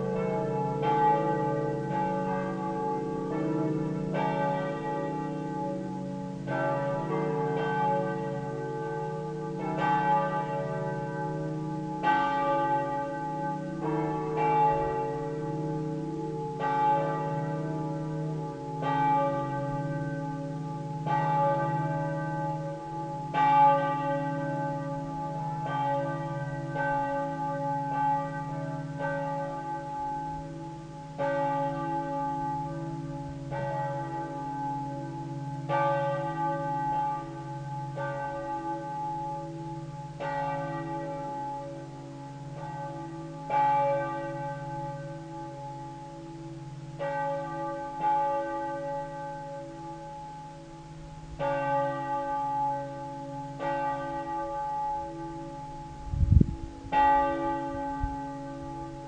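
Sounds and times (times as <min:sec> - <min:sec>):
church bells ringing: 0:00.0 - 0:59.0.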